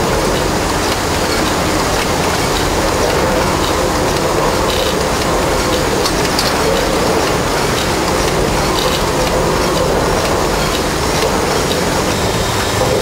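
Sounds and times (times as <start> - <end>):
steam engine running: 0.0 - 13.0
valve gear clicks: 4.2 - 7.2.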